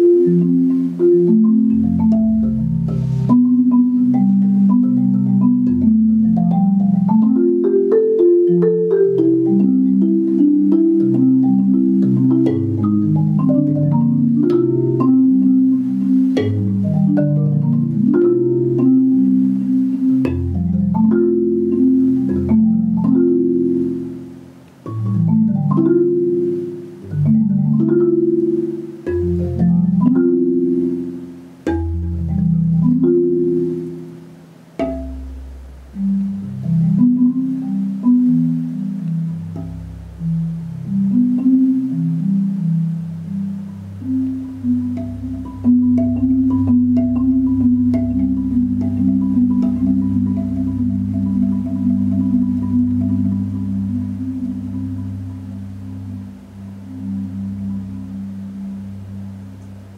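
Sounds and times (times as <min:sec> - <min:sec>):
solo marimba: 0:00.0 - 0:59.9.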